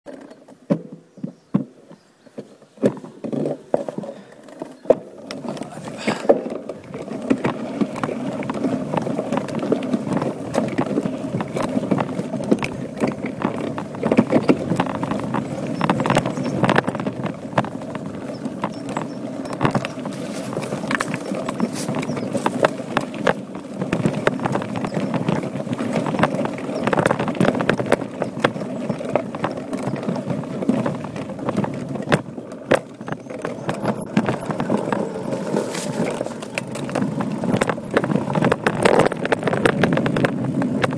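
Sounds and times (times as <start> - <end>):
bike rattling and knocking: 0.0 - 40.9
bike tyres rumbling on dirt trail: 0.0 - 40.9.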